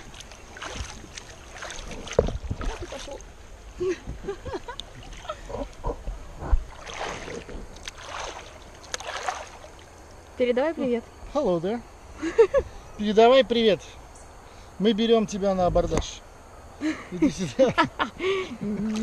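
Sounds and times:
river water lapping and splashing: 0.0 - 10.2, 18.8 - 19.0.

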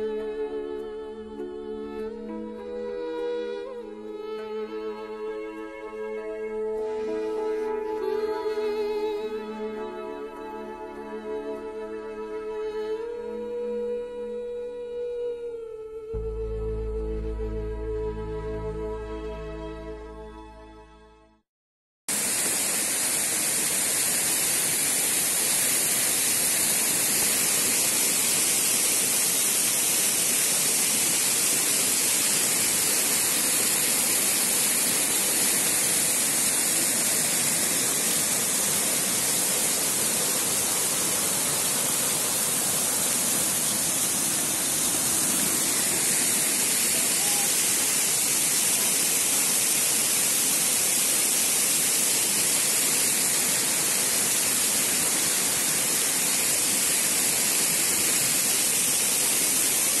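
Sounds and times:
waterfall splashing onto rock: 22.1 - 60.0.

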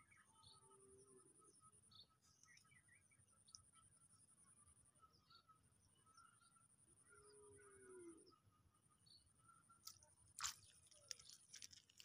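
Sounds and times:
faint drawn-out animal call: 7.0 - 8.6.

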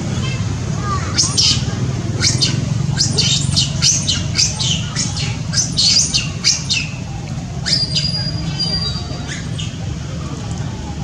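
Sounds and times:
monkey screaming squeals: 1.1 - 1.6, 2.2 - 7.0, 7.6 - 9.7.

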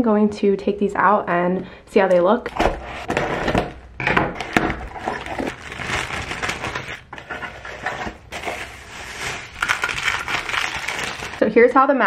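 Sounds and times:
cardboard rustling and scraping: 2.4 - 11.4.

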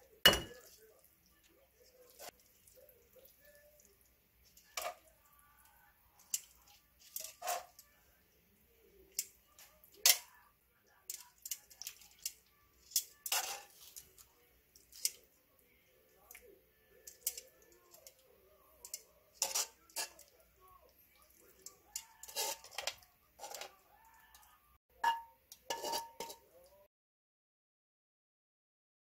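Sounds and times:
utensil clinking on pan and plates: 0.2 - 0.9, 4.4 - 5.2, 6.2 - 8.0, 9.1 - 10.4, 11.1 - 15.3, 17.0 - 20.4, 21.2 - 23.8, 25.0 - 26.6.

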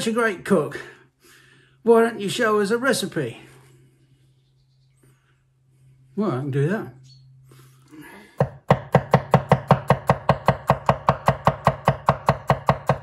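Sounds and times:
knife chopping on wooden board: 8.4 - 13.0.

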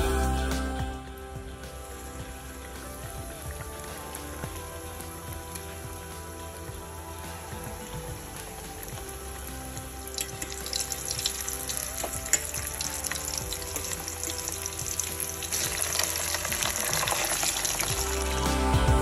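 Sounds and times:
soft background music: 0.0 - 19.0
cutlets deep-frying in oil: 8.5 - 18.2.

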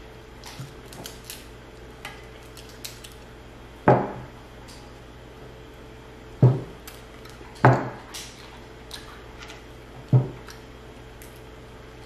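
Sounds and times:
tableware knocks: 6.4 - 6.7.

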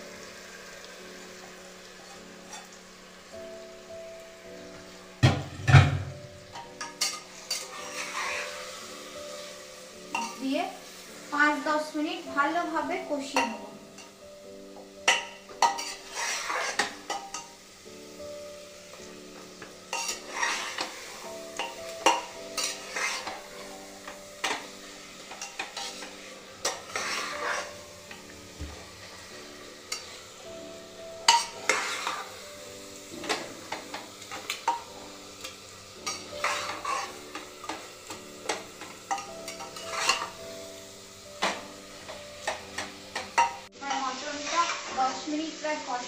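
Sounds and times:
oil sizzling: 0.0 - 46.0
spatula scraping in a pot: 6.6 - 10.4, 15.1 - 17.6, 19.9 - 28.2, 31.2 - 32.4, 33.2 - 40.4, 42.4 - 45.0.

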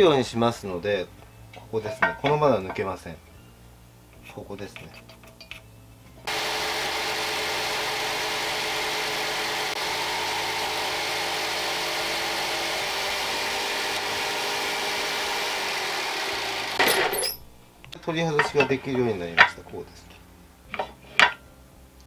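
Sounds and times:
jigsaw cutting wooden board: 6.3 - 17.2.

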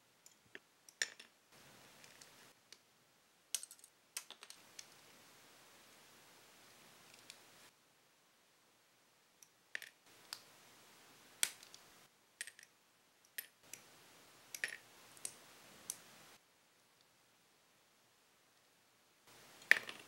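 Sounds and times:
plastic parts clicking together: 3.5 - 5.0.

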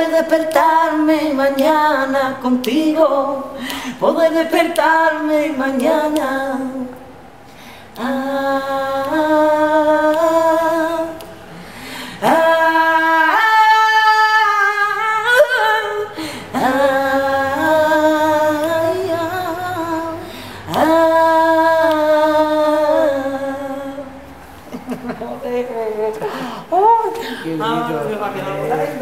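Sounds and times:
women singing a cappella: 0.0 - 29.0.

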